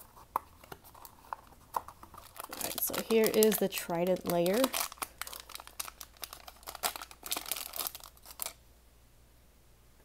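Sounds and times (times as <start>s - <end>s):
foil packaging crinkling: 0.6s - 8.6s.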